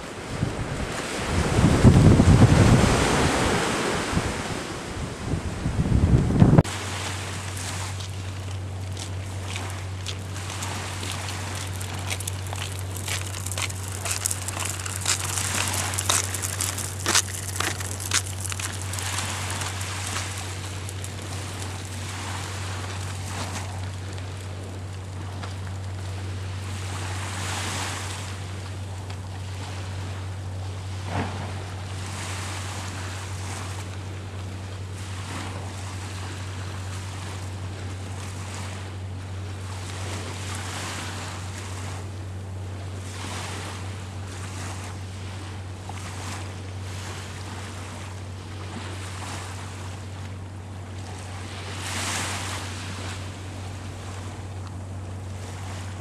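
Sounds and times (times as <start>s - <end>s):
wind on microphone: 0.0s - 24.8s
low hum: 0.0s - 56.0s
small waves washing on shore: 0.0s - 56.0s.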